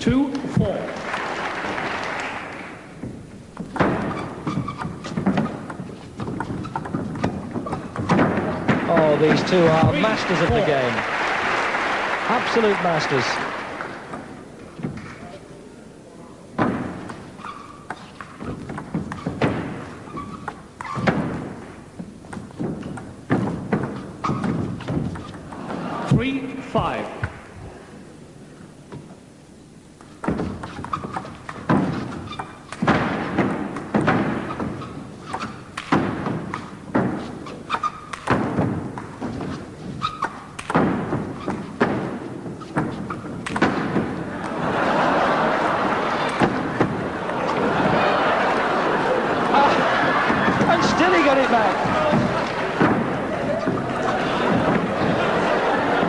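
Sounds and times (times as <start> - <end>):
heavier thuds: 2.9 - 10.8, 16.6 - 17.3, 18.4 - 20.2, 20.9 - 26.3, 30.2 - 37.4, 38.2 - 44.4, 45.0 - 56.0
table tennis ball hits: 3.0 - 10.7, 16.6 - 25.8, 30.2 - 44.6, 46.2 - 48.0.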